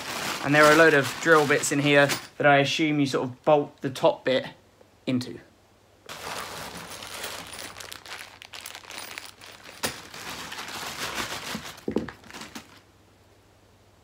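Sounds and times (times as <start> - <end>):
plastic bag crinkling: 0.0 - 2.1, 6.1 - 12.9.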